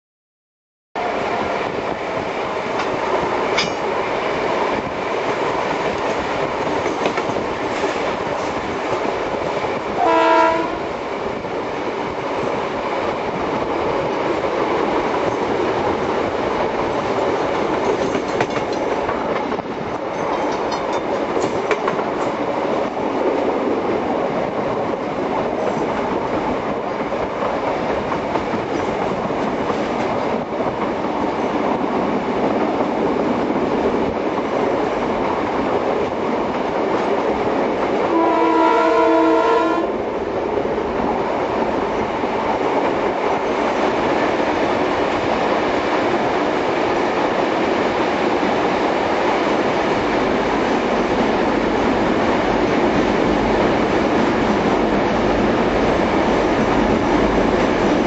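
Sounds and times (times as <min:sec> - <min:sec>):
train rumbling: 0:01.0 - 0:58.0
locomotive horn blast: 0:10.0 - 0:10.9, 0:38.1 - 0:40.0
wheels clicking over rail joints: 0:17.4 - 0:22.4.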